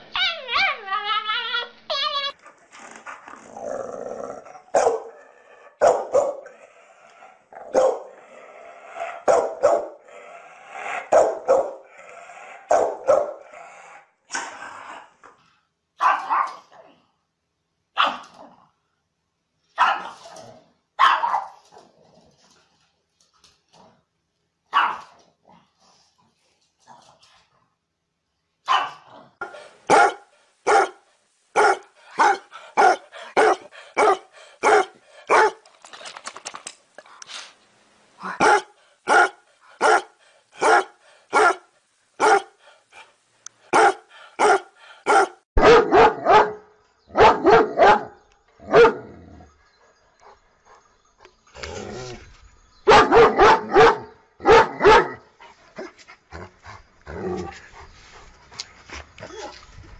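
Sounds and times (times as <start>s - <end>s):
dogs barking: 4.7s - 6.6s, 7.7s - 8.2s, 9.1s - 10.0s, 10.9s - 11.9s, 12.7s - 13.4s, 16.0s - 16.6s, 19.8s - 20.3s, 21.0s - 21.6s, 24.7s - 25.1s, 28.7s - 31.0s, 31.6s - 35.6s, 38.3s - 42.6s, 43.7s - 49.1s, 52.9s - 55.2s.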